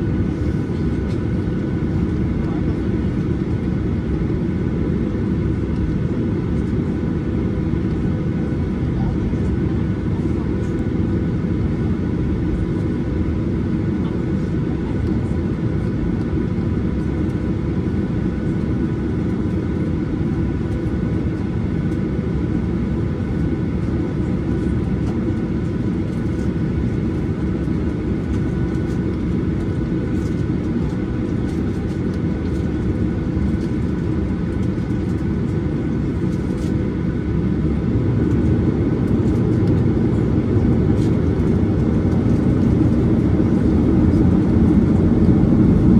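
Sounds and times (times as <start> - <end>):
jet engines rumbling in cabin: 0.0 - 45.9.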